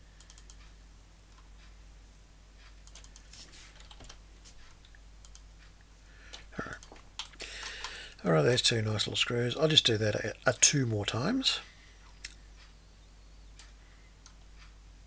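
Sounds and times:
low steady hum: 0.0 - 15.0
computer keyboard typing: 0.2 - 0.6, 2.8 - 4.2, 6.3 - 8.2.

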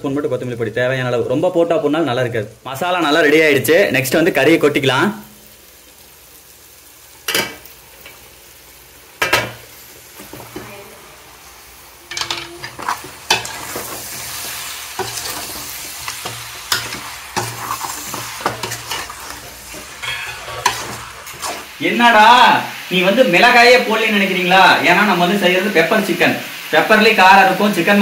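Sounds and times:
meat sizzling in oil: 0.1 - 28.0
spatula scraping a pot: 12.1 - 21.7.

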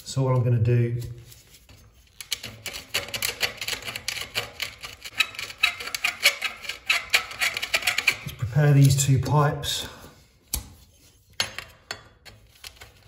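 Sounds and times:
reamer tool scraping copper pipe: 0.1 - 9.5.

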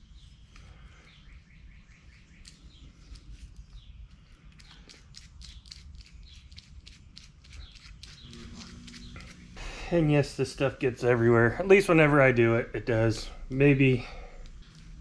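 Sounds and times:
wet grease squishing: 2.3 - 9.4.

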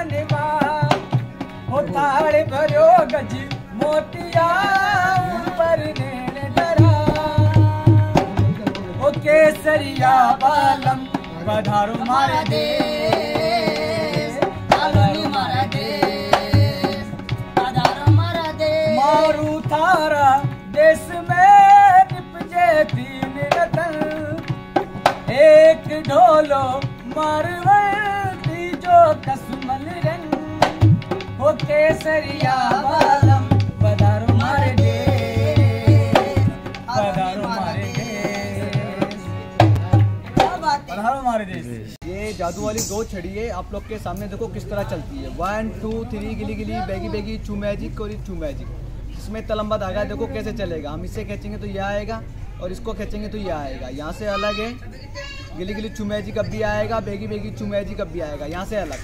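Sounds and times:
barrel drum rhythm: 0.0 - 41.7
man singing folk song: 1.7 - 24.4, 31.4 - 39.6.

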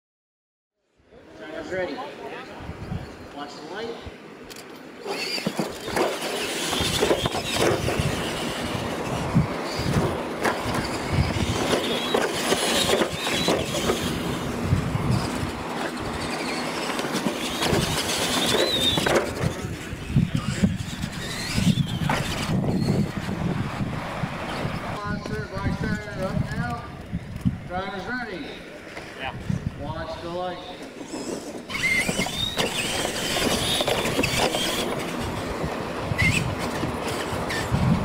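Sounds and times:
toy truck motors whining: 4.4 - 23.6, 30.6 - 38.0.

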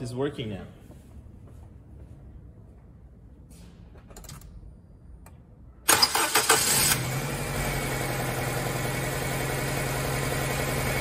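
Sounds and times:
car engine cranking and starting: 5.9 - 11.0
car engine idling: 6.1 - 11.0.

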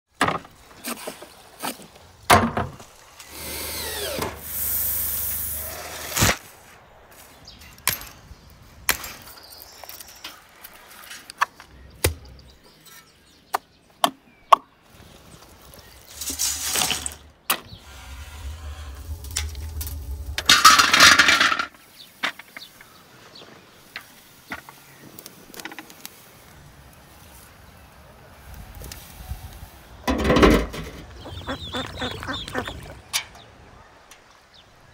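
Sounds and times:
bursts of rushing noise: 17.7 - 21.8.

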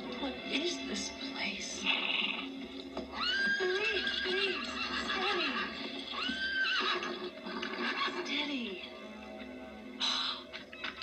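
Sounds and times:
horse whinnying: 3.1 - 5.1, 6.1 - 7.8.

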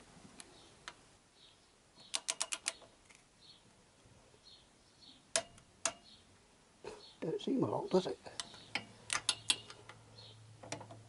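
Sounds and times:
sharp wrench clicks: 2.1 - 2.8, 8.4 - 9.8.

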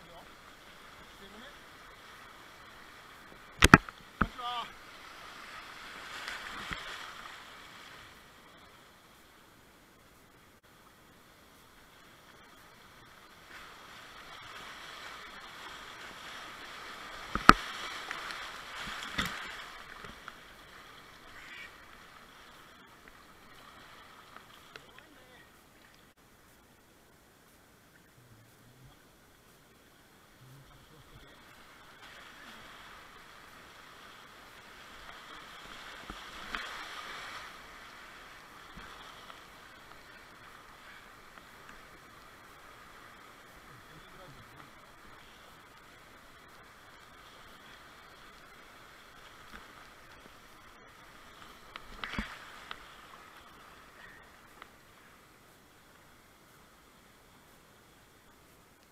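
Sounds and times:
whitewater rushing: 0.0 - 8.2, 30.7 - 55.3.

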